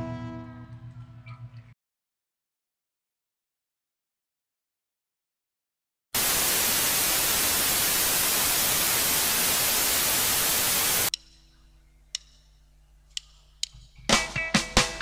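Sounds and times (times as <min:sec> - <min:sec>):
tv static hiss: 0:06.2 - 0:11.1
sharp clicks: 0:12.1 - 0:12.5
live band playing: 0:14.1 - 0:15.0.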